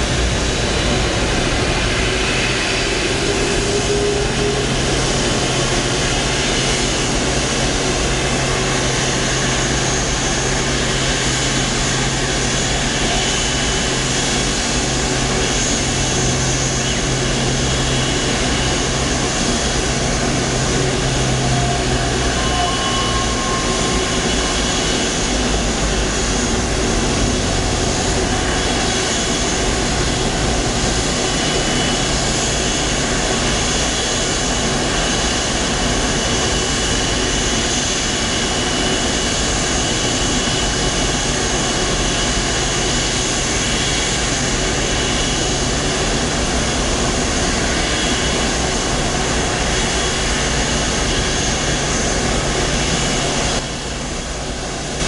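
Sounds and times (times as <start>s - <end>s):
low hum: 0.0s - 33.7s
jet engine whine and roar: 0.0s - 55.0s.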